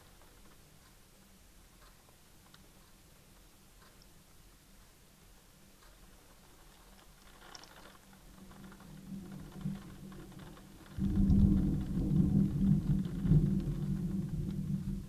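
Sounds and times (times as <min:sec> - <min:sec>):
thunder rumbling: 0:08.3 - 0:15.0.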